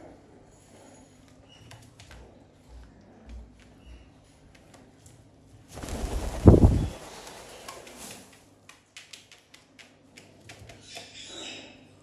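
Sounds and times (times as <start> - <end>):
loud rustling thump: 5.8 - 7.0.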